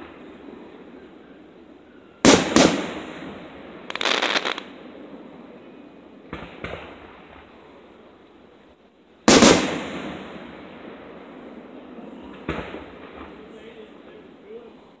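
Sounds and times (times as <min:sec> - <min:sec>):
fireworks crackling: 0:00.0 - 0:15.0
fireworks bangs: 0:02.2 - 0:05.0, 0:06.3 - 0:07.6, 0:09.3 - 0:14.6
fireworks pops: 0:06.3 - 0:07.5, 0:12.3 - 0:13.4.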